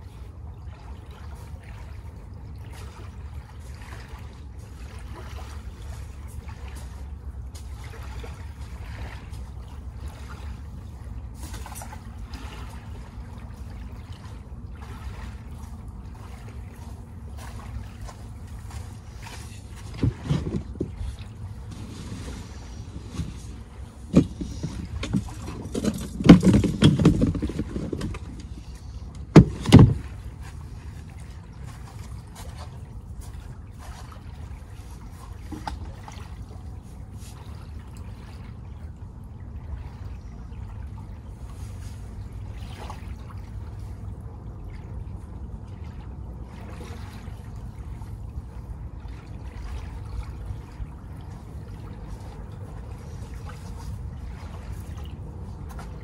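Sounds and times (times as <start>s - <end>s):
small waves lapping at shore: 0.0s - 56.0s
microphone handling noise: 21.7s - 28.6s.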